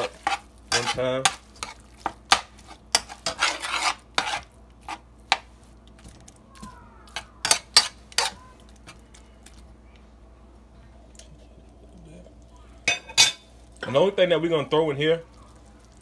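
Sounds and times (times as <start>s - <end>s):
utensil scraping metal skillet: 0.0s - 5.0s, 7.4s - 8.4s.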